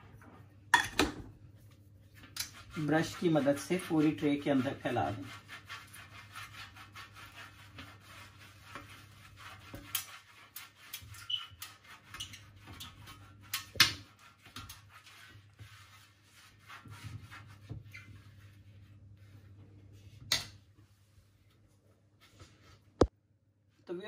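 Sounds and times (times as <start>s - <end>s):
brush rubbing on metal tray: 1.8s - 20.2s.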